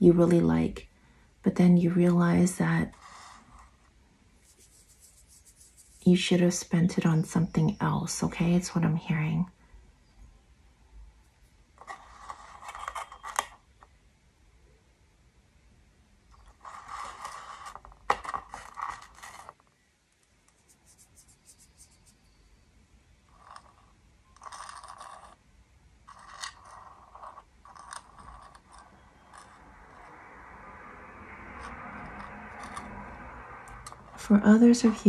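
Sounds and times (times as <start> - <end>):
scraping and rustling: 2.9 - 6.1, 11.3 - 13.6, 16.4 - 19.7, 26.1 - 30.2, 33.7 - 35.0.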